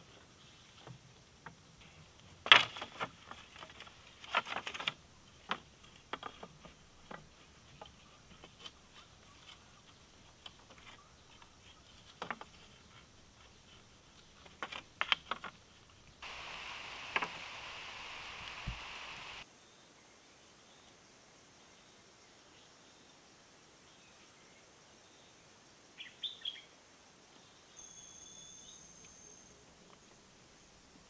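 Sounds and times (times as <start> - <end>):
outdoor background hiss: 0.0 - 31.0
bamboo pieces clacking: 2.4 - 13.0, 14.4 - 17.6.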